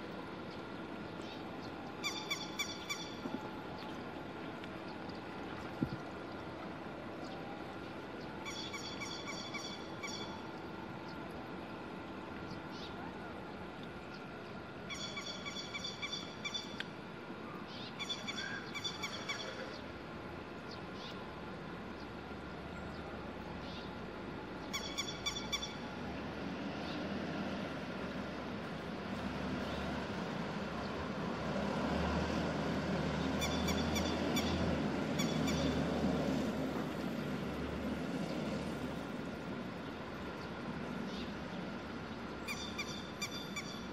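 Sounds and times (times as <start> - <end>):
lapwing calling: 2.0 - 3.2.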